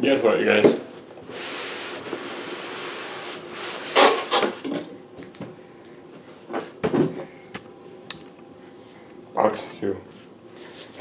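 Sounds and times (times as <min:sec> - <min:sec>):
cardboard scraping and rubbing: 0:01.3 - 0:04.6.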